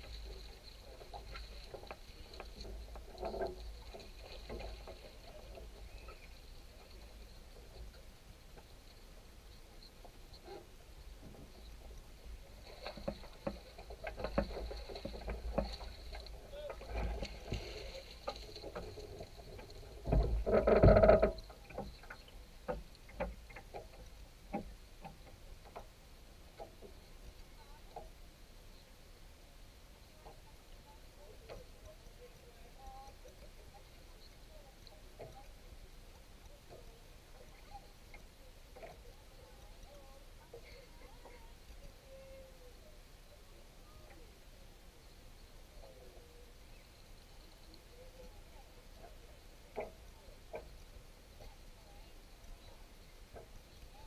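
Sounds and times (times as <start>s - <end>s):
rope and metal fittings clicking: 0.0s - 10.6s, 11.2s - 25.9s.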